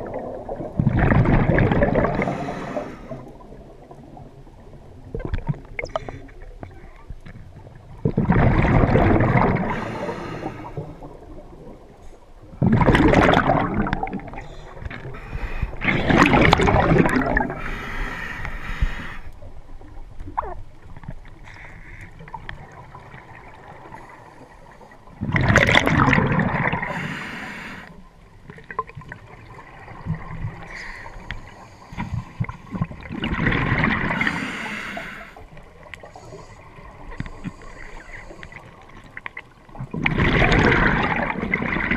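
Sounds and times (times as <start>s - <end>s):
rush of bubbles underwater: 0.0s - 6.7s, 7.5s - 21.6s, 22.2s - 27.8s, 28.4s - 41.9s
breathing through regulator: 2.1s - 3.3s, 9.6s - 11.0s, 14.3s - 16.3s, 17.5s - 19.4s, 26.8s - 28.0s, 34.2s - 35.4s, 36.0s - 38.7s.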